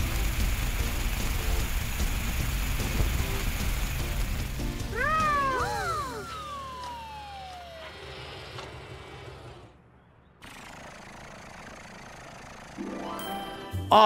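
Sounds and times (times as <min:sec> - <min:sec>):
steady hiss-like hum: 0:00.0 - 0:04.9
low mechanical hum: 0:00.0 - 0:13.6
long falling tone: 0:04.9 - 0:08.4.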